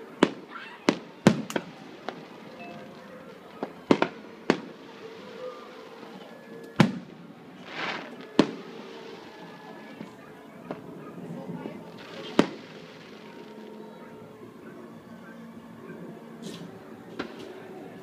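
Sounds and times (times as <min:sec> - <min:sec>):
distant fireworks bangs: 0:00.1 - 0:14.0
firework rushing hiss: 0:07.5 - 0:10.0, 0:11.9 - 0:13.7.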